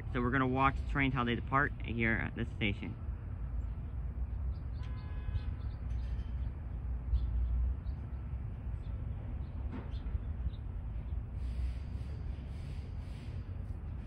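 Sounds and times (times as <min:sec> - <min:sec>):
low outdoor rumble: 0:00.0 - 0:14.0
bird chirps: 0:04.4 - 0:08.2.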